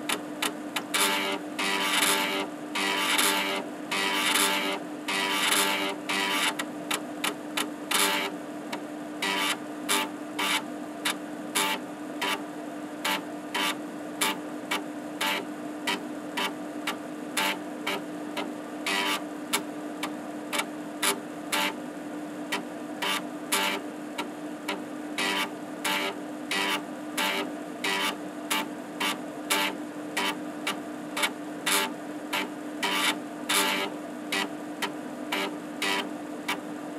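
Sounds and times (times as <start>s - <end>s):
steady hum: 0.0s - 36.9s.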